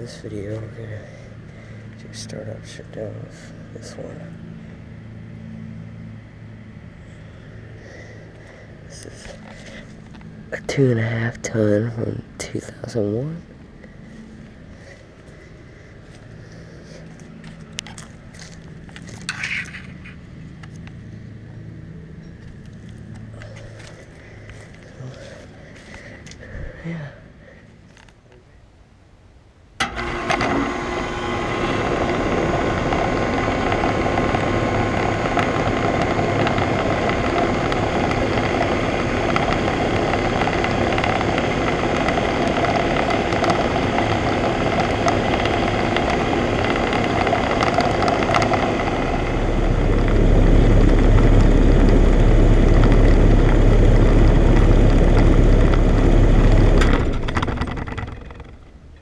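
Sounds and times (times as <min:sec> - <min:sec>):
air conditioner unit humming: 0:19.9 - 0:59.0.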